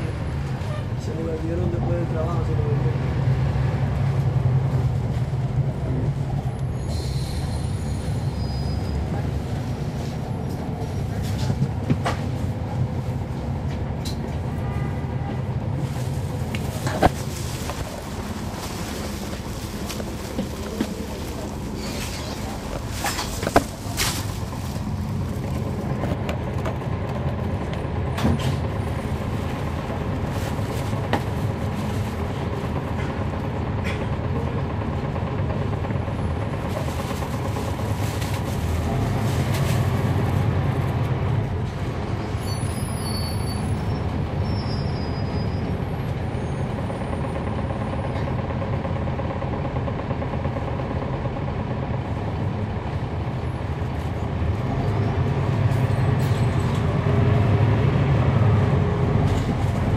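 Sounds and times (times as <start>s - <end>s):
bus diesel engine drone: 0.0s - 59.9s
brief high squeal: 6.8s - 9.0s, 42.4s - 45.7s.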